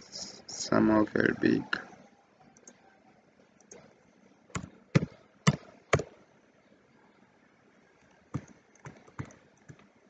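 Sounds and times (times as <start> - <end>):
computer keyboard keystrokes: 8.4 - 9.9.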